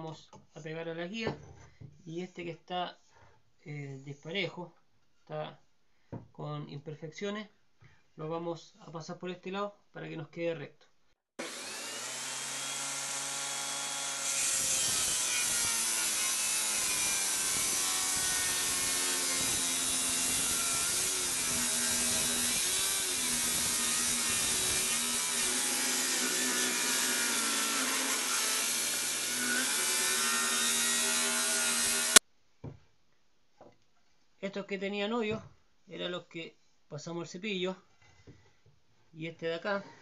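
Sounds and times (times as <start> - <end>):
table saw ripping wood: 11.4 - 32.2.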